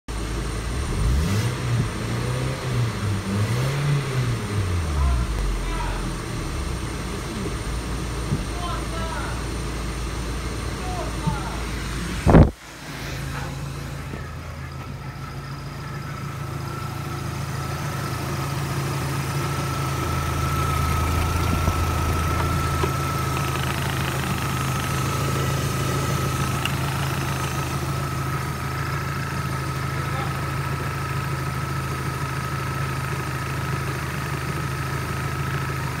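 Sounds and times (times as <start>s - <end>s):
car engine idling: 0.1s - 36.0s
thin high tone: 11.8s - 28.4s.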